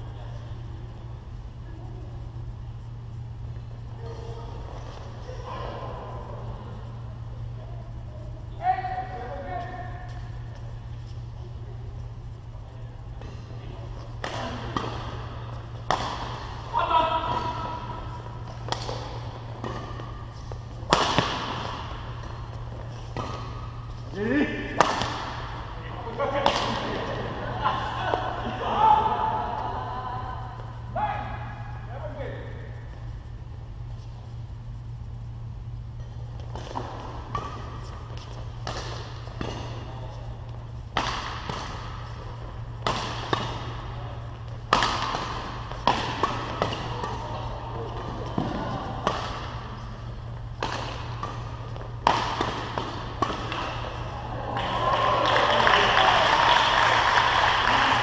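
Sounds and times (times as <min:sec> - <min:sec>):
steady low hum: 0:00.0 - 0:58.0
racket hitting shuttlecock: 0:14.0 - 0:25.8, 0:26.4 - 0:27.2, 0:36.0 - 0:54.2.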